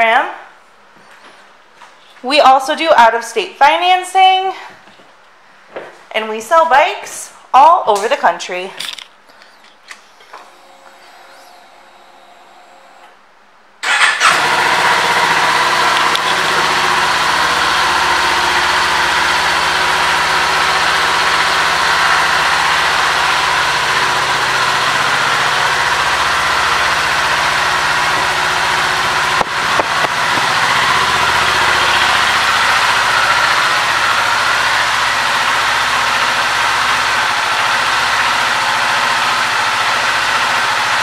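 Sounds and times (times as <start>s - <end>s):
motorcycle engine starting and idling: 13.8s - 41.0s.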